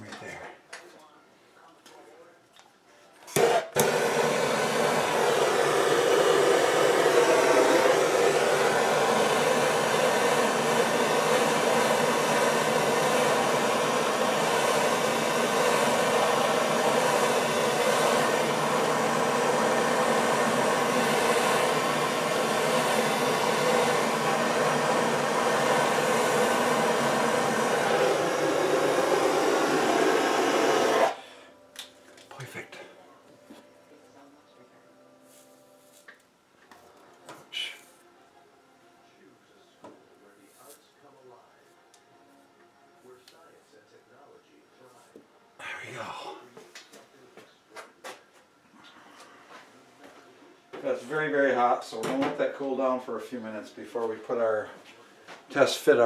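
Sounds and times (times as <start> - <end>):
gas torch hissing: 3.4 - 31.2.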